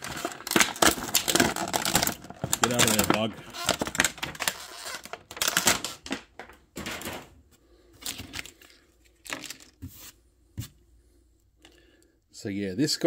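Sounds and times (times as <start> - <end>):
plastic packaging crinkling: 0.0 - 7.2, 8.0 - 9.8.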